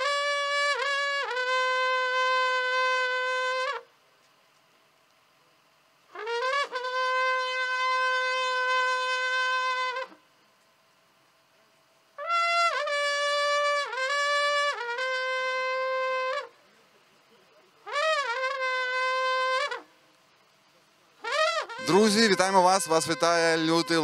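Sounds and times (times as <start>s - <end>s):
solo horn playing long notes: 0.0s - 3.9s, 6.1s - 10.2s, 12.2s - 16.6s, 17.8s - 19.9s, 21.2s - 24.0s.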